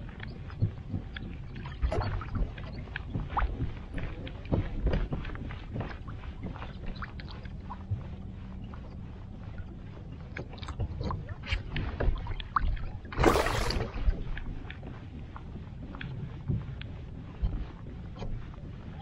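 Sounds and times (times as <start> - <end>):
waves lapping against kayak: 0.4 - 15.2.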